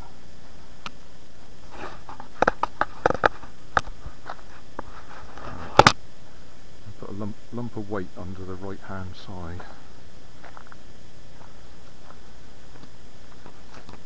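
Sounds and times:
footsteps crunching on dry leaves: 9.4 - 14.0.

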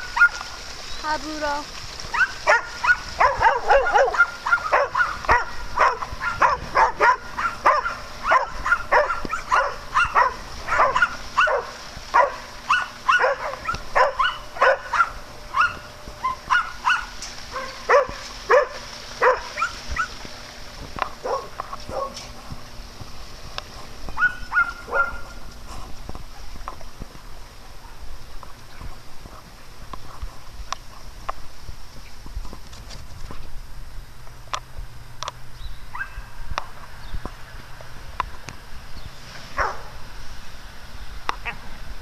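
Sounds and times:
dog barking: 0.1 - 0.4, 2.1 - 20.1, 21.2 - 22.3, 24.2 - 25.4, 35.9 - 36.2, 39.6 - 39.9.

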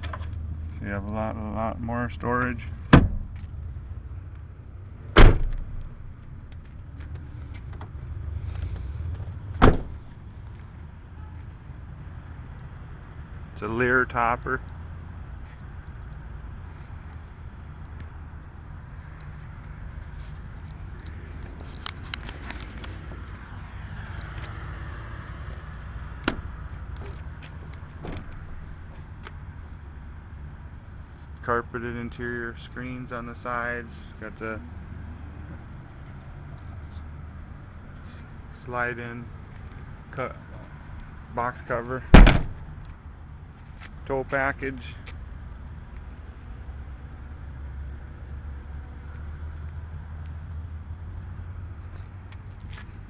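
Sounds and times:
low steady rumble: 0.0 - 21.9
pickup truck doors shutting: 5.1 - 5.8, 9.6 - 10.0, 42.1 - 42.6.

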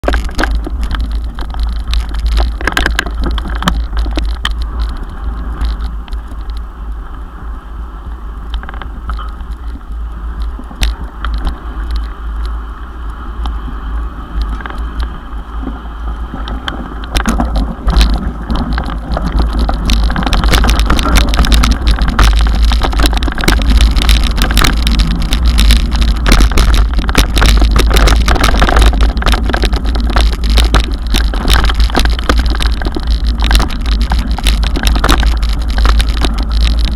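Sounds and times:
knocks and rattles over bumps: 0.0 - 6.6, 16.4 - 36.9
bike rumbling over gravel trail: 0.0 - 36.9.

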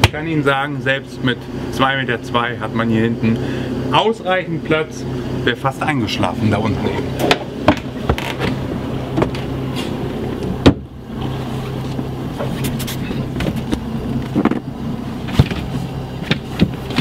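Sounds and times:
low mechanical hum: 0.0 - 17.0
seat cushions rustling: 7.2 - 17.0.

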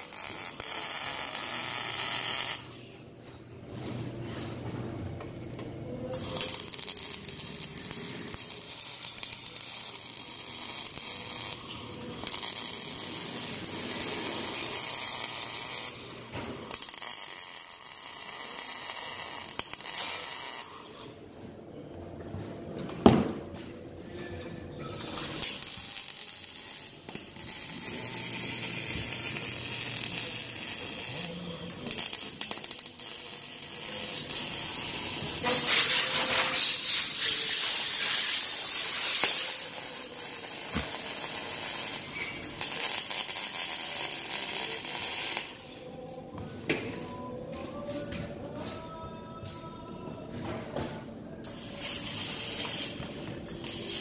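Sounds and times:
welding arc crackling and hissing: 0.0 - 3.0, 6.1 - 21.0, 25.0 - 45.8, 51.4 - 54.0.

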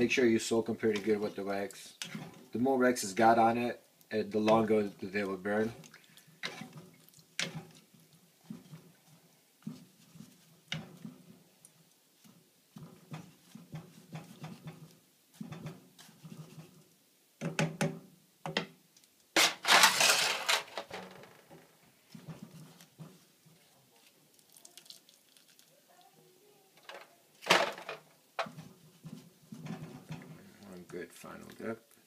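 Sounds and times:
wax sloshing and dripping: 0.0 - 17.0, 21.9 - 26.2, 28.4 - 32.0
liquid splashing: 4.8 - 9.0.

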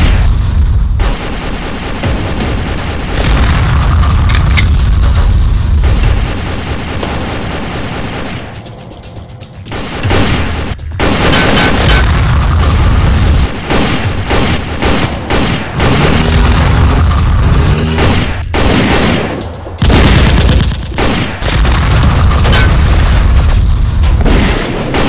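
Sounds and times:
explosions: 0.0 - 8.5, 9.8 - 25.0
gunfire: 0.0 - 9.0, 9.6 - 25.0
background music: 0.0 - 25.0.

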